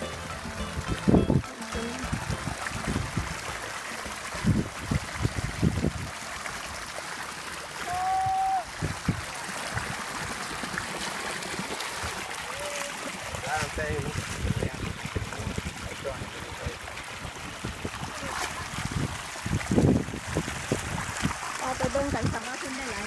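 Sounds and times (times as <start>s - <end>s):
high tone: 0.0s - 3.6s
dull low thumps: 0.0s - 3.7s
muddy water trickling: 0.0s - 23.0s.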